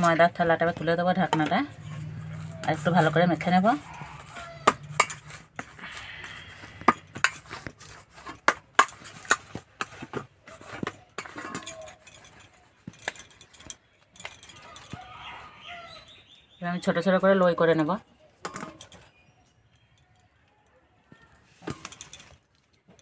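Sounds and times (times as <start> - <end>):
dough kneaded in metal bowl: 0.0 - 13.2.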